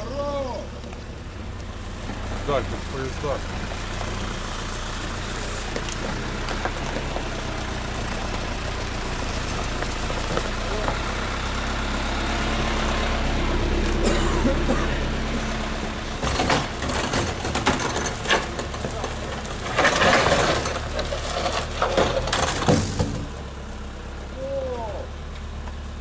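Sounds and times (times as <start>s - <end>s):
truck engine idling: 0.0s - 26.0s
sharp knocks and clattering thuds: 16.1s - 23.4s.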